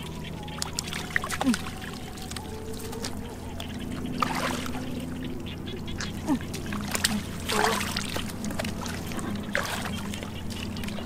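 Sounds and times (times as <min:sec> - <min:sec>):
muddy water splashing: 0:00.0 - 0:11.0
steady low hum: 0:00.0 - 0:11.0.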